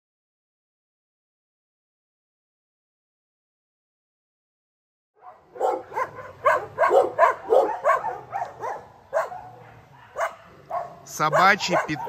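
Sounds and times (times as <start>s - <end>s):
dogs barking: 5.2s - 12.0s.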